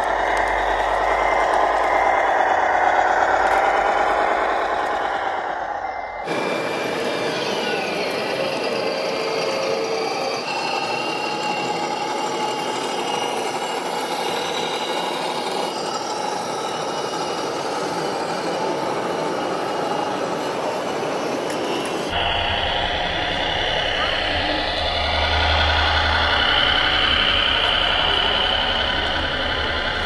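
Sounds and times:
background hum: 0.0s - 7.2s, 22.1s - 30.0s
model truck motors whining: 0.0s - 18.7s, 21.4s - 30.0s.

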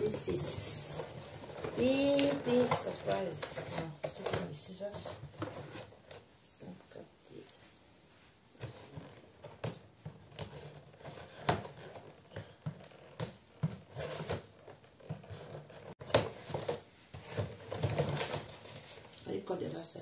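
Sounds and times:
packaging rustling: 8.6s - 19.2s.

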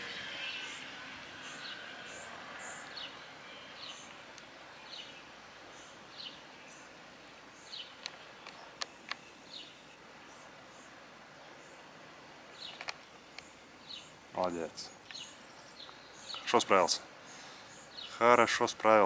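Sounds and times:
steady background hiss: 0.0s - 19.0s
faint bird or insect chirps: 0.4s - 16.5s
sharp clicks: 8.0s - 9.4s.

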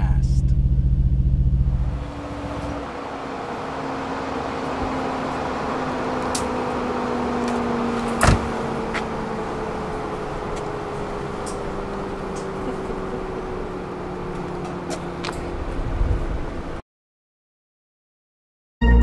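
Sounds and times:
car door thud: 8.0s - 9.2s.

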